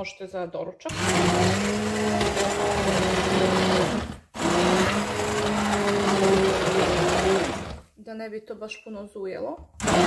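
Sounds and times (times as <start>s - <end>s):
immersion blender buzzing: 0.9s - 7.8s, 9.8s - 10.0s.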